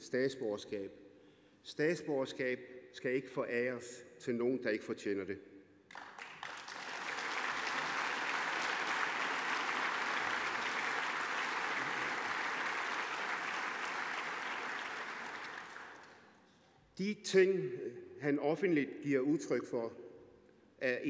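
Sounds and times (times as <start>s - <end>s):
audience applauding: 5.9s - 16.3s.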